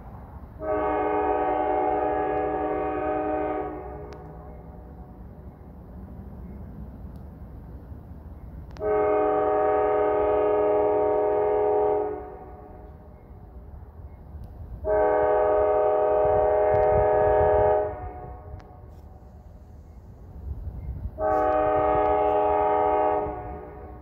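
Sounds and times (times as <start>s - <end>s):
locomotive air horn blasts: 0.6s - 4.6s, 8.7s - 13.1s, 14.8s - 19.1s, 21.2s - 24.0s.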